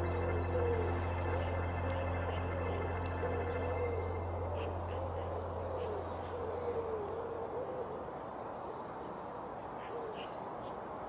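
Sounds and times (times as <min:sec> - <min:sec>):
low hum: 0:00.0 - 0:06.6
pigeon cooing: 0:00.0 - 0:08.1
small birds chirping faintly: 0:00.0 - 0:11.0.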